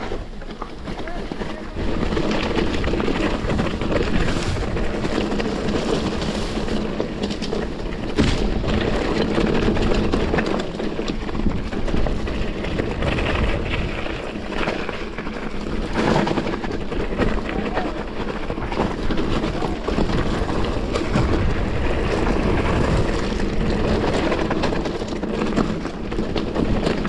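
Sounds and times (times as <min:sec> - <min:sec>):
bike rattling and clicking: 0:00.0 - 0:27.0
bike tyres on dirt trail: 0:00.0 - 0:27.0
wind on microphone: 0:08.1 - 0:25.1.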